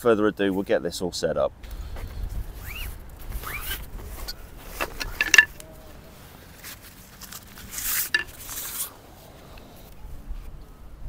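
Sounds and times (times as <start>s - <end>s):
fabric bag rustling: 2.6s - 9.2s
metallic clink: 4.8s - 5.7s, 8.0s - 8.4s.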